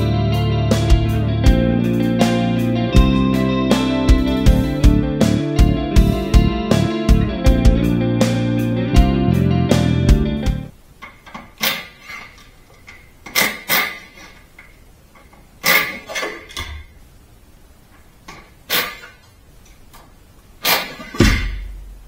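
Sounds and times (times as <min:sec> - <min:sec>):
metal tools clanking: 0:15.2 - 0:16.8.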